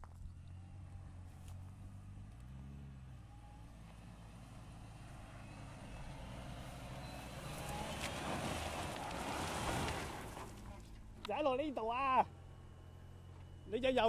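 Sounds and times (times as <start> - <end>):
off-road vehicle engine running low: 0.0 - 14.0
tyres crunching over gravel: 6.6 - 11.4.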